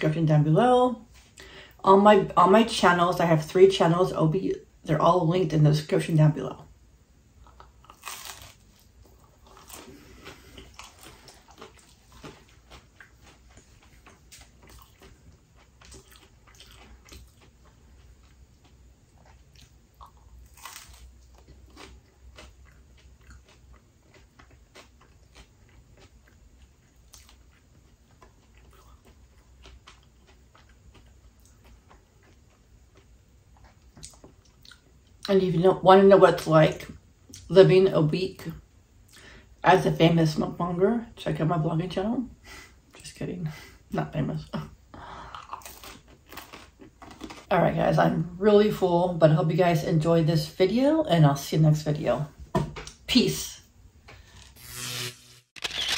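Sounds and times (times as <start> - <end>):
person chewing pizza: 7.4 - 35.3, 45.0 - 47.5.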